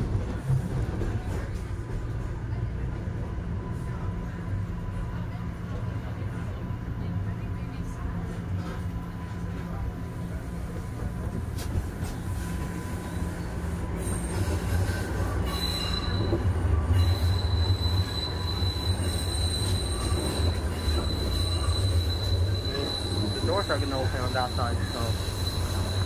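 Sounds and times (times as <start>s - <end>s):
subway train rumbling: 0.0s - 26.0s
steel wheels squealing on rails: 11.6s - 26.0s.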